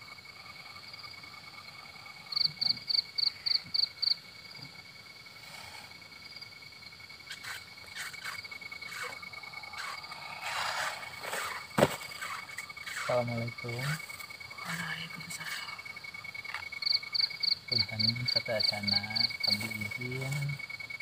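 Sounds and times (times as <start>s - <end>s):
crickets chirring: 0.0s - 21.0s
rustling movement: 7.4s - 14.5s.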